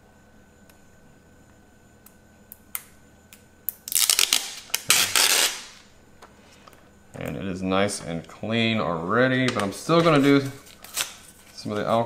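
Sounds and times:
plastic film peeling crackle: 0:03.7 - 0:05.9, 0:09.9 - 0:11.9.

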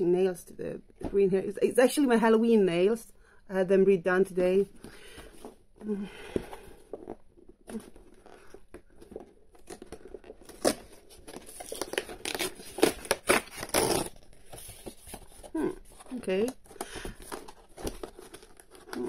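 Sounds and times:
tape tearing from cardboard: 0:09.6 - 0:15.4.

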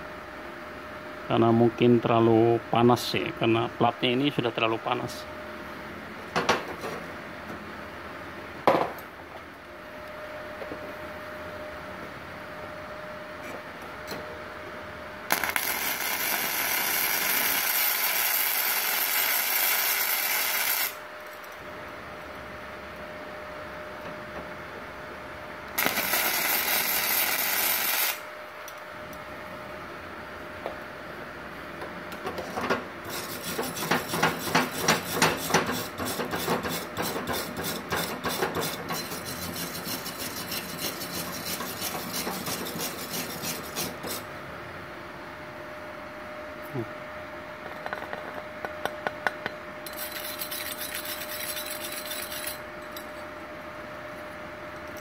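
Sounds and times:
welding arc crackling sizzle: 0:15.3 - 0:21.1, 0:25.7 - 0:28.8
wire brush scrubbing metal: 0:33.1 - 0:44.3, 0:49.9 - 0:52.6.

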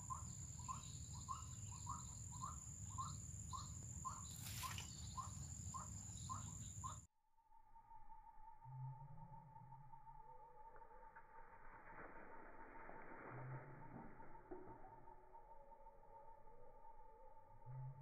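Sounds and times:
faint steady tone: 0:00.0 - 0:18.0
brief rustle: 0:04.3 - 0:04.9.

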